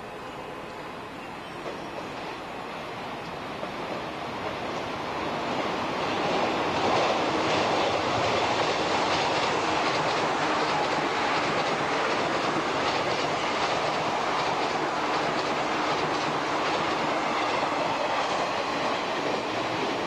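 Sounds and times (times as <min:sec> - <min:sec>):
electric train passing at speed: 0:00.0 - 0:20.0
wheels clicking over rails: 0:06.2 - 0:19.9.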